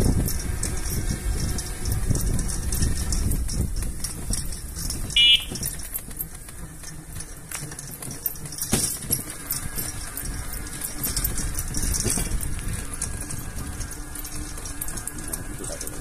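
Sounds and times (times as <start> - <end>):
wind rumbling on microphone: 0.0 - 6.7, 9.6 - 16.0
short high-pitched beep: 5.2 - 5.5.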